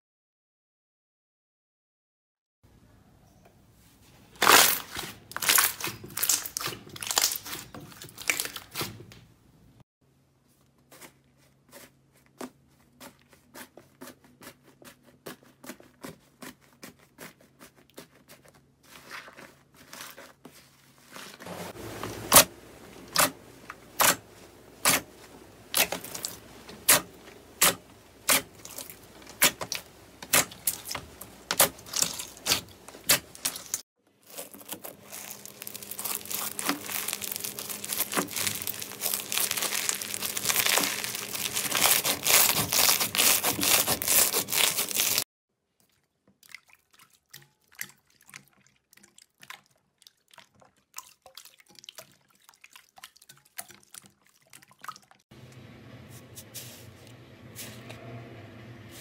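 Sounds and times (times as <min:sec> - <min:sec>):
crunchy slime crackling: 0:04.3 - 0:09.0, 0:23.1 - 0:45.3.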